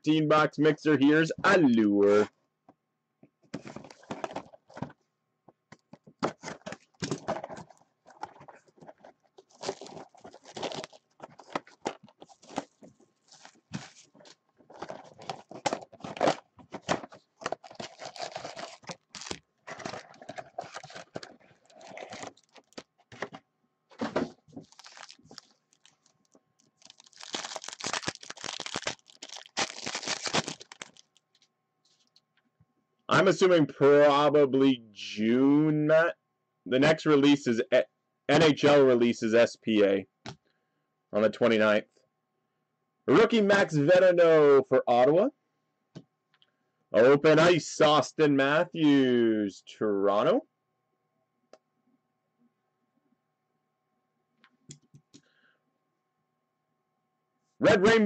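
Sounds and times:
plastic wrap and cardboard crackling: 0:06.2 - 0:23.3, 0:24.2 - 0:31.4
foil pack ripping: 0:09.4 - 0:14.1, 0:17.4 - 0:22.8, 0:24.6 - 0:26.1, 0:26.7 - 0:31.2.

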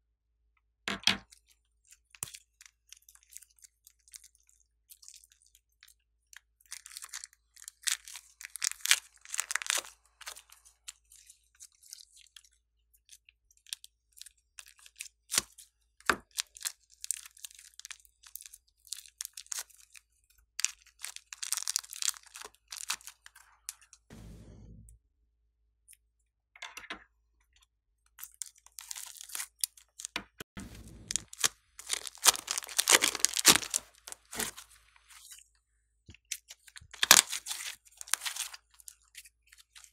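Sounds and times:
slime crackling and popping: 0:06.7 - 0:10.7, 0:20.6 - 0:23.4, 0:28.2 - 0:34.8, 0:36.9 - 0:38.9.

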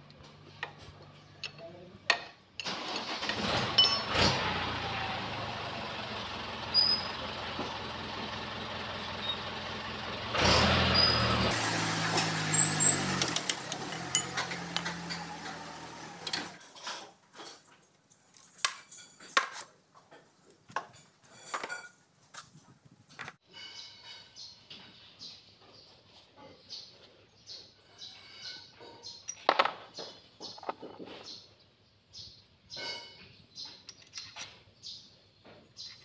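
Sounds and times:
metal tools clinking: 0:03.8 - 0:04.2, 0:12.5 - 0:17.7, 0:18.4 - 0:19.6, 0:20.9 - 0:22.1, 0:28.1 - 0:29.7, 0:32.7 - 0:34.6.

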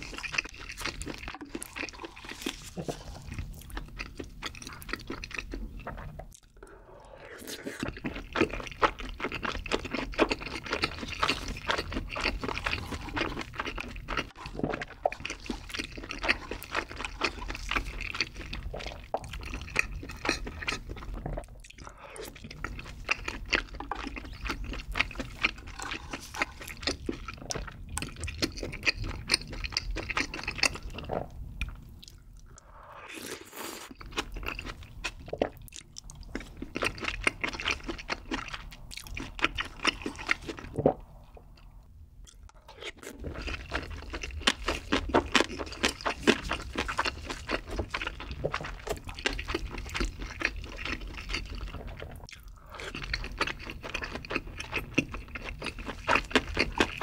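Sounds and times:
close chewing with wet mouth clicks: 0:00.0 - 0:06.6, 0:07.3 - 0:40.8, 0:41.5 - 0:57.0.

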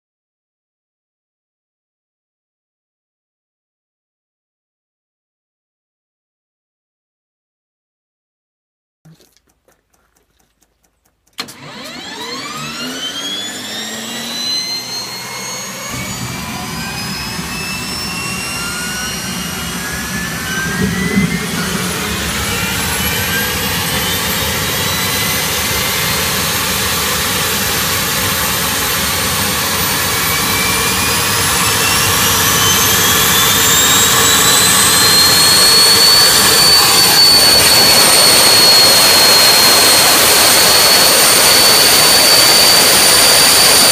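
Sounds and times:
turbine whine rising in pitch: 0:11.4 - 0:43.9
low rumble: 0:15.0 - 0:32.9.

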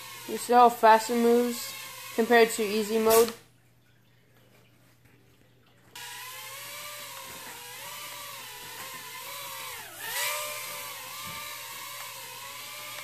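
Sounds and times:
small drone motors whining: 0:00.0 - 0:02.9, 0:06.0 - 0:13.0.

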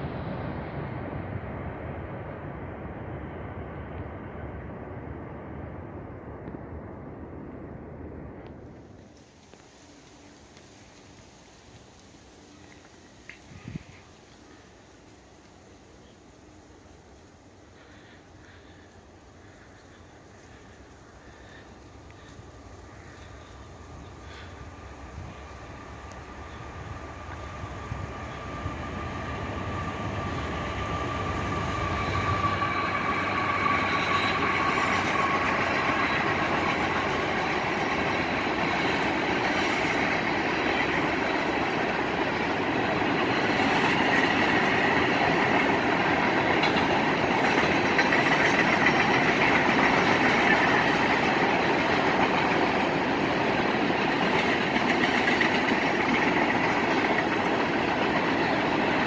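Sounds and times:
freight train wheels rumbling: 0:00.0 - 0:59.0
high wheel squeal: 0:27.3 - 0:41.6.

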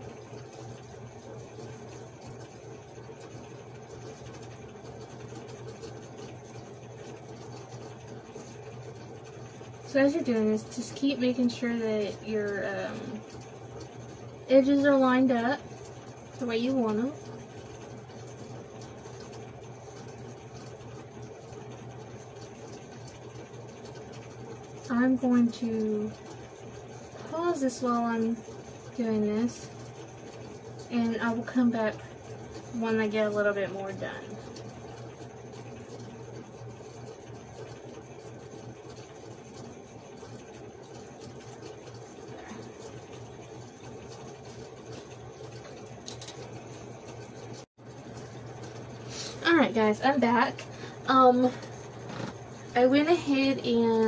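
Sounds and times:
low machine hum: 0:00.0 - 0:54.0.

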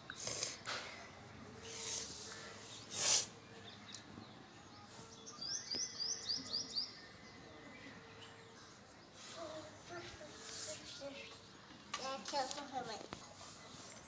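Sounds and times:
bird chirping: 0:01.6 - 0:08.8
short loud hiss: 0:02.9 - 0:03.4.

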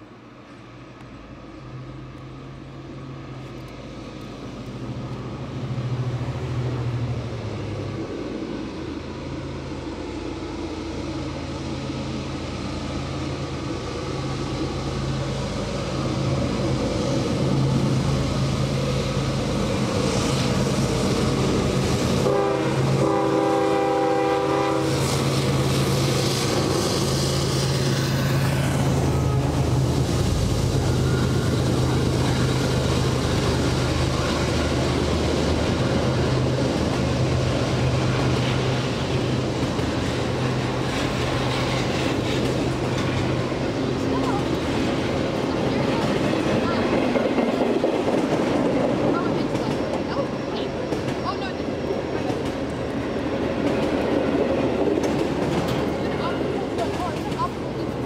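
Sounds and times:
diesel locomotives running: 0:00.0 - 0:58.0
freight cars rolling past: 0:01.4 - 0:58.0
train horn: 0:22.2 - 0:25.1.

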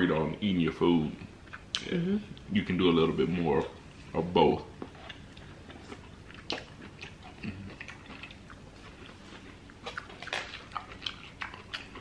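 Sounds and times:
person chewing and biting: 0:04.7 - 0:12.0.

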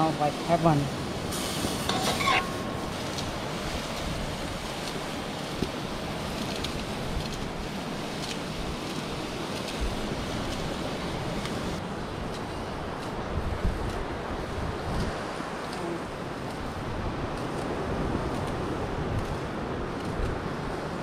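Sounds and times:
food sizzling in a pot: 0:00.6 - 0:05.2
spoon scraping pot: 0:01.9 - 0:02.7.

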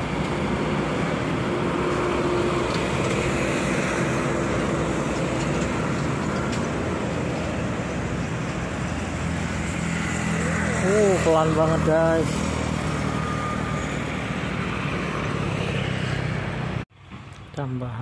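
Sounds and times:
road traffic passing: 0:00.0 - 0:18.0.

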